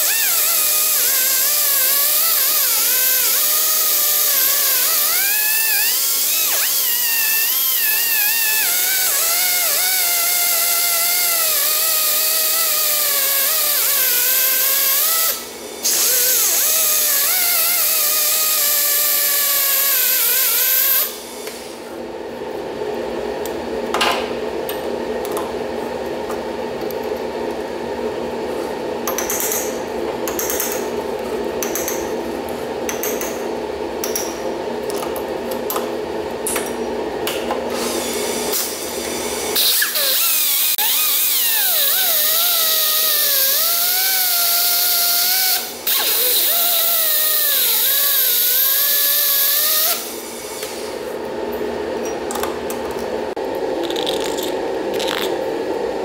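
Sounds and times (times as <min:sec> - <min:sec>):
air die grinder whining: 0:00.0 - 0:21.6, 0:37.7 - 0:51.0.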